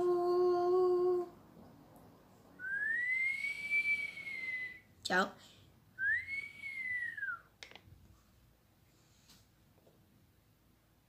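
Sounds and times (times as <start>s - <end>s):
person singing: 0.0s - 1.4s
boy whistling: 2.6s - 4.9s, 6.0s - 7.6s.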